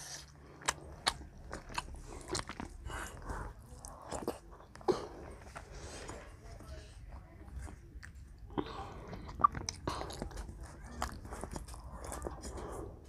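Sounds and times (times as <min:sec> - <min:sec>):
child chewing wetly: 0:00.0 - 0:13.0.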